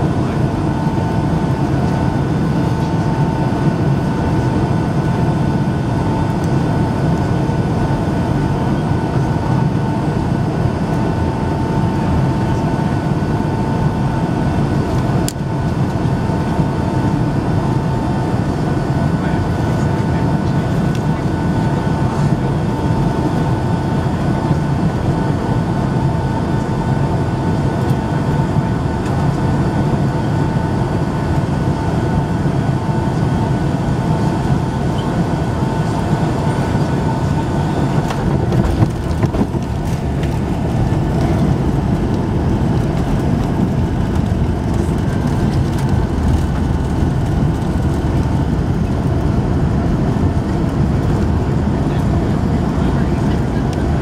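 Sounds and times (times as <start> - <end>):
airliner engine and airflow noise: 0.0 - 54.0
runway roll rumble: 35.4 - 54.0.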